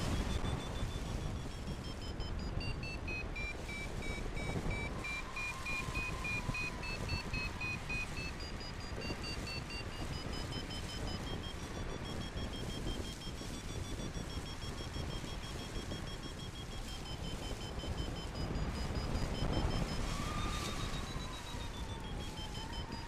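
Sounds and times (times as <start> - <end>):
variometer beeping rapidly: 0.0 - 23.0
wind on microphone: 0.0 - 23.0.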